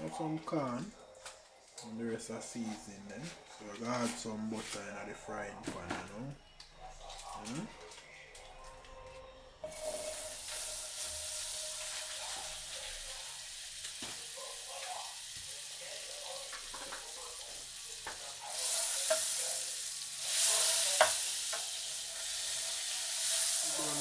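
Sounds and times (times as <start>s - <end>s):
butter sizzling in a frying pan: 9.6s - 24.0s.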